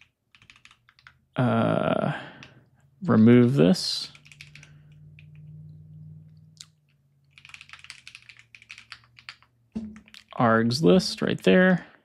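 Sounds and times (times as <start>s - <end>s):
typing on computer keyboard: 0.0s - 1.2s, 4.1s - 5.5s, 6.7s - 10.3s.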